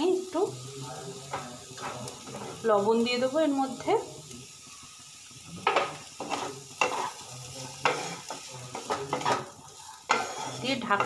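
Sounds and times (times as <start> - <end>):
vegetables sizzling: 0.0 - 11.0
spatula scraping a pan: 1.2 - 2.8, 5.6 - 11.0.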